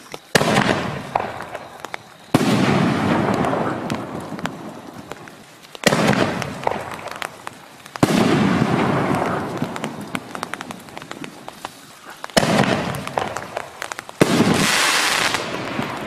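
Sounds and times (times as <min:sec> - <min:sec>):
sharp firework pops: 0:00.0 - 0:16.0
echoing firework rumble: 0:00.3 - 0:16.0
firework shell booms: 0:00.4 - 0:01.7, 0:02.3 - 0:04.6, 0:05.8 - 0:07.4, 0:08.0 - 0:11.0, 0:12.4 - 0:16.0.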